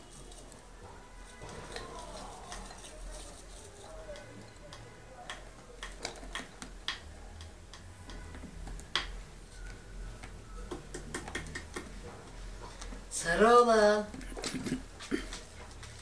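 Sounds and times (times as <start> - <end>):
claws scratching and tapping: 0.0 - 12.0.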